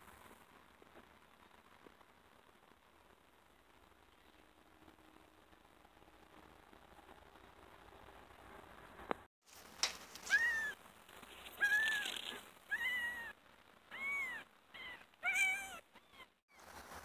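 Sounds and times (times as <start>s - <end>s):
kitten mewing: 10.2s - 10.8s, 11.4s - 16.3s.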